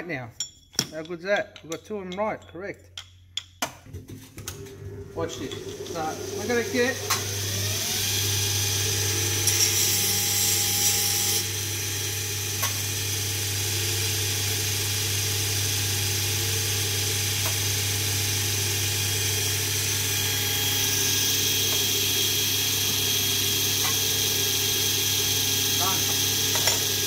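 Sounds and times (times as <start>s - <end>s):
metal parts knocking: 0.4s - 3.6s
belt grinder motor humming: 5.0s - 27.0s.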